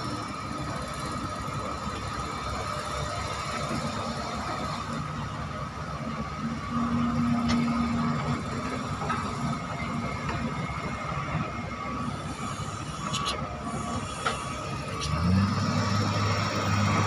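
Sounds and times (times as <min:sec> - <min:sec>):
excavator diesel engines: 0:00.0 - 0:17.0
hydraulic whine: 0:06.5 - 0:17.0.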